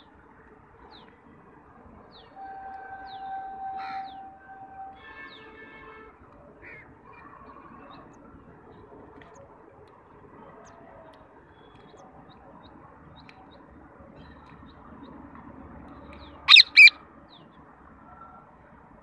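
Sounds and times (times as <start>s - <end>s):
faint outdoor background noise: 0.0s - 19.0s
parakeet squawks: 16.5s - 17.0s.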